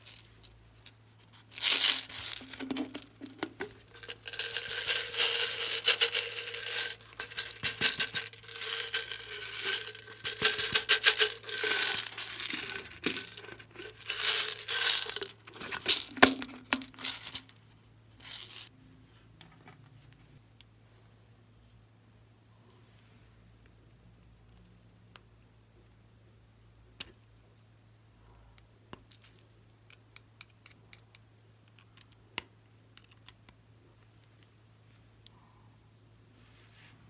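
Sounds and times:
rubber toy crinkling and rustling: 0.0s - 18.7s.

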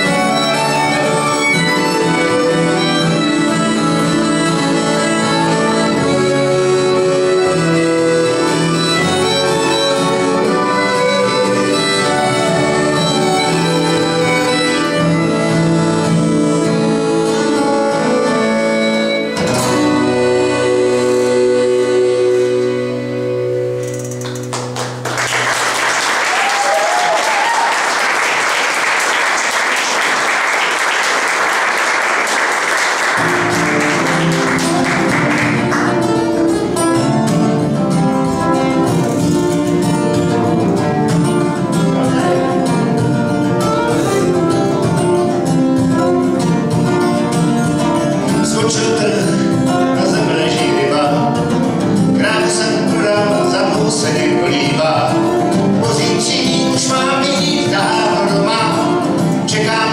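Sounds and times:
fiddle playing: 0.0s - 23.8s, 29.0s - 58.7s
guitar playing: 0.0s - 59.9s
audience applause: 24.2s - 36.2s.

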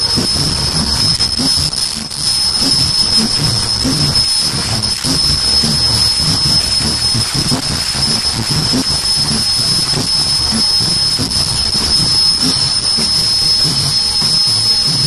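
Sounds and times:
machine high-pitched whine: 0.0s - 15.0s
rhythmic mechanical knocking: 0.0s - 15.0s.

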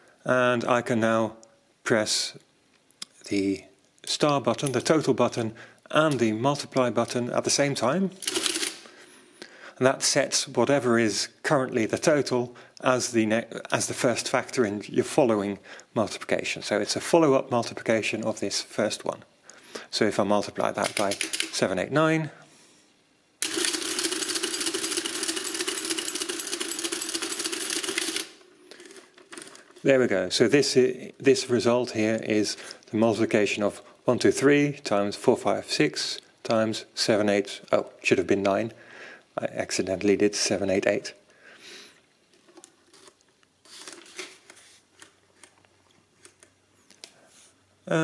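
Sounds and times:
faint clicks of adding machine: 23.4s - 29.8s
paper rustling: 42.4s - 45.6s.

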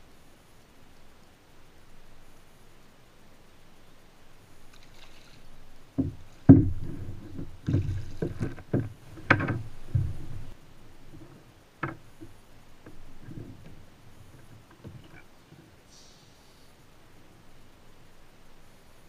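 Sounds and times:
water splashing: 4.6s - 15.7s
thumps against plastic kayak: 6.0s - 10.6s.

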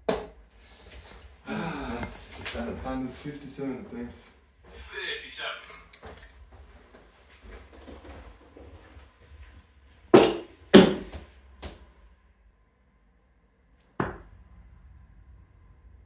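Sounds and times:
darts thudding into dartboard: 10.2s - 11.2s, 14.0s - 14.3s.

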